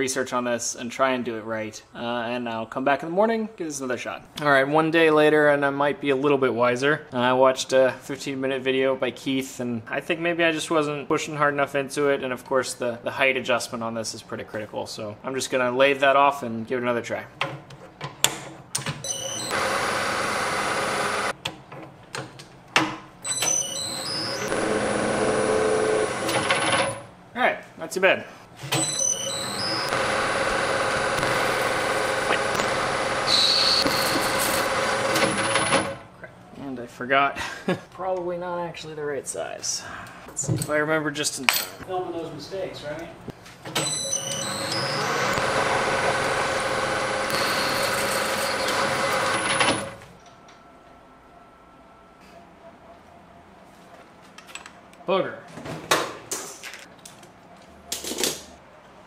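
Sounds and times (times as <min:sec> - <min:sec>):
metal lathe knurling: 0:29.5 - 0:36.0.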